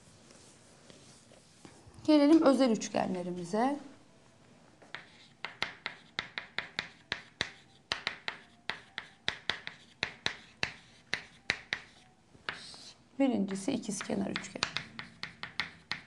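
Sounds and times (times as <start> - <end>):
chalk tapping and scratching on chalkboard: 4.8 - 13.0, 13.7 - 16.0.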